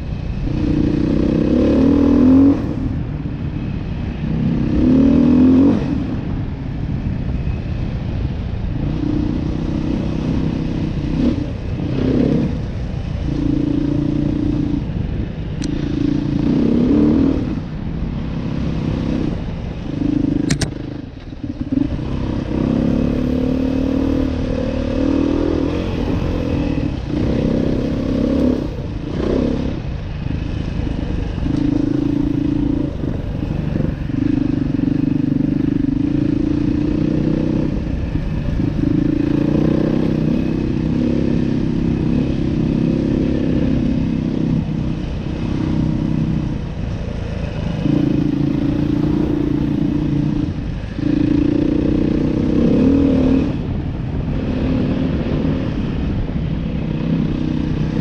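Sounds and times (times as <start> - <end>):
motorcycle engine revving: 0.0 - 58.0
sharp click: 20.4 - 20.8.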